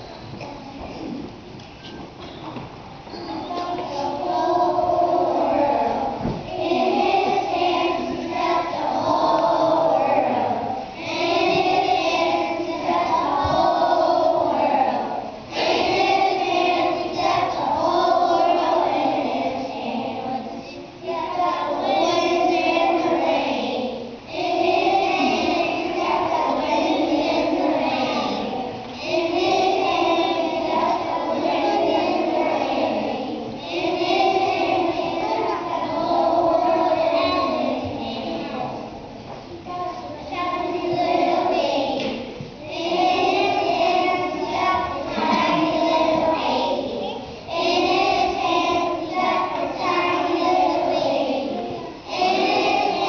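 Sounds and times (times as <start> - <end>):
children's choir singing: 0.0 - 53.0.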